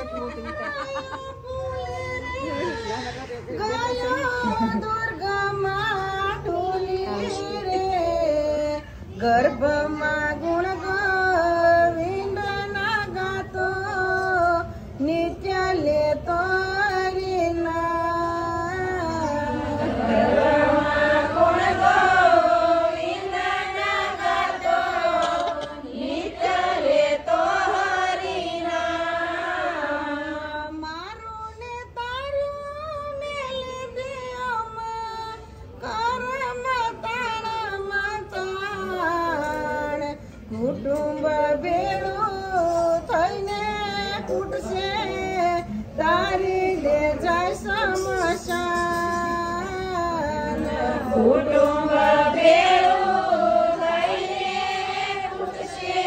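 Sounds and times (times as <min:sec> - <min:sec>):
woman singing a slow song: 0:00.0 - 0:54.1.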